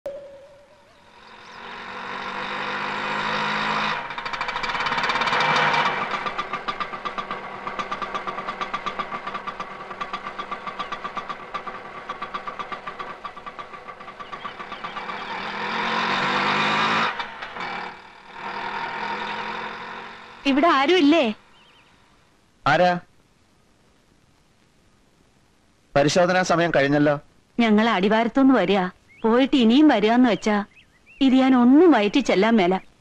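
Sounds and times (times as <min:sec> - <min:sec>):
auto-rickshaw engine idling and revving: 0:00.8 - 0:22.0.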